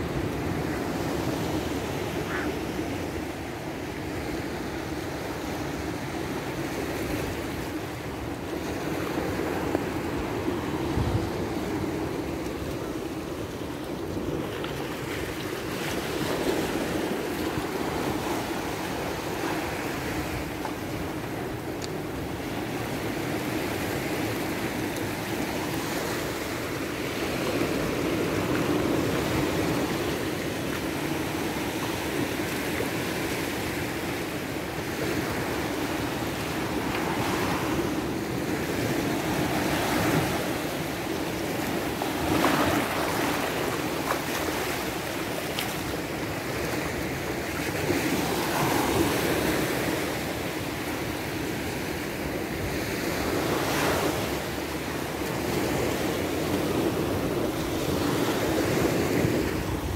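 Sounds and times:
waves washing onto sandy beach: 0.0 - 59.9.

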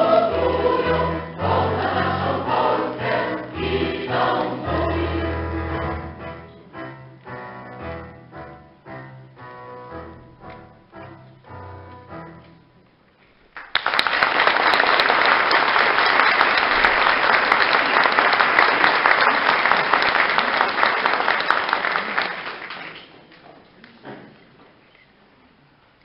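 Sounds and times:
choir singing a chord: 0.0 - 7.0
audience applause: 13.5 - 23.4.

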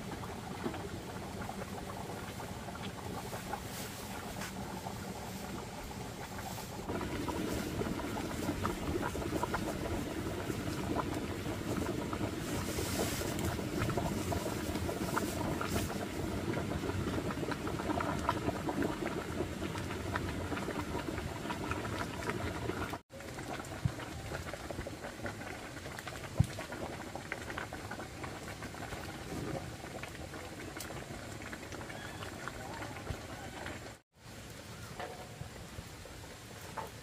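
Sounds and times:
bran pouring hiss: 0.0 - 19.9
pot of water boiling: 0.0 - 37.0.

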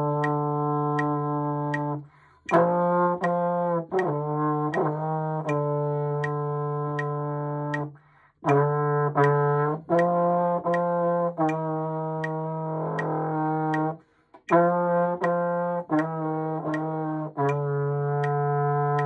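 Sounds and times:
metronome clicking: 0.0 - 19.0
slide trombone notes: 0.0 - 19.0.

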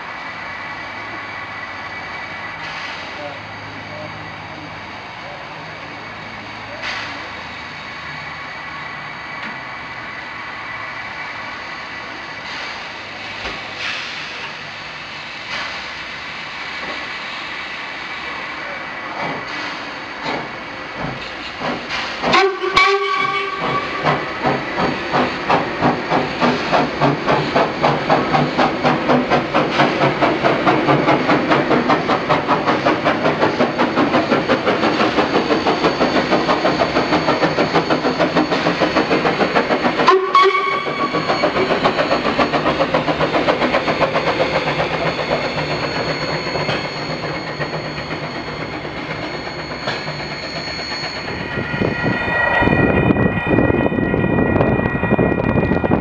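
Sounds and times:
steam locomotive exhaust chuffs: 0.3 - 56.0
steam whistle blasts: 22.3 - 24.2, 40.0 - 41.6.

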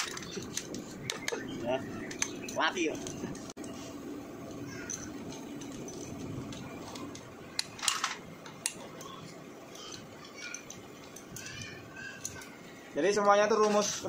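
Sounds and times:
metal tools clicking and clattering: 0.0 - 1.4, 4.7 - 14.0.

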